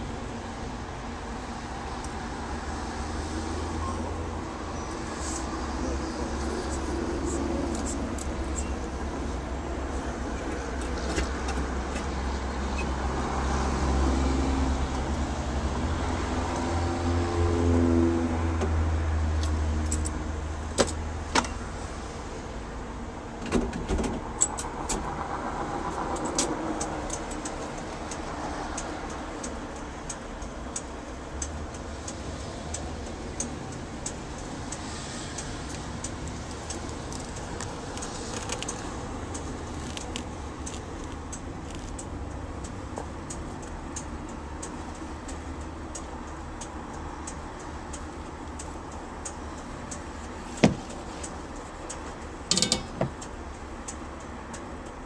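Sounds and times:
sharp clicks and knocks: 10.4s - 12.2s, 25.9s - 55.0s.

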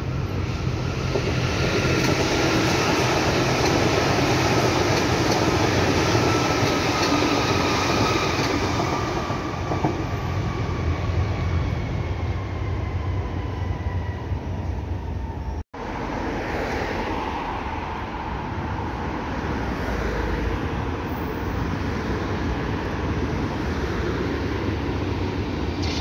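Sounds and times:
train wheels rumbling on rails: 0.0s - 15.3s.

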